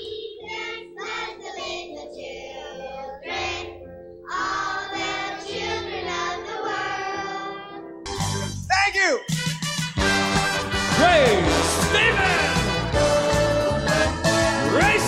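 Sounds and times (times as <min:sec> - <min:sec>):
voices singing: 0:00.0 - 0:07.8, 0:14.5 - 0:15.0.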